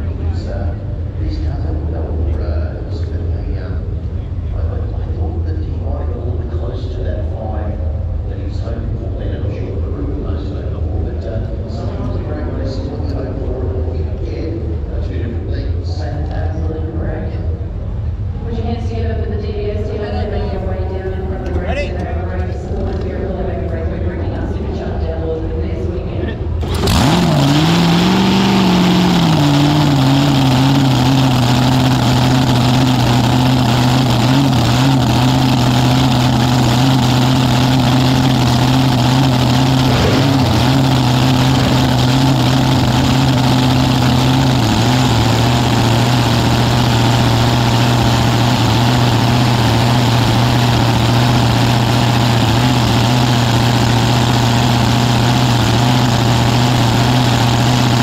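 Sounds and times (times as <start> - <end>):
dragster engine idling: 26.5 - 58.0.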